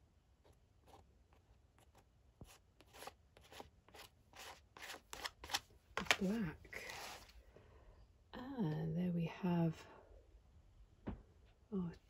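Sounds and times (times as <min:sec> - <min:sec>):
spatula scraping paint on paper: 0:00.4 - 0:05.6.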